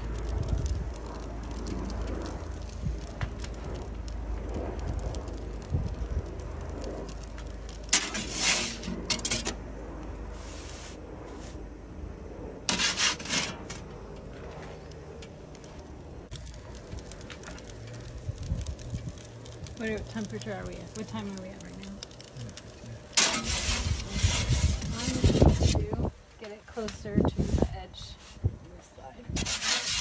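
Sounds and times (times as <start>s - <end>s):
low rumble: 0.0s - 29.4s
metal peel scraping stone: 7.8s - 9.6s, 12.7s - 13.9s, 23.1s - 25.8s, 29.4s - 30.0s.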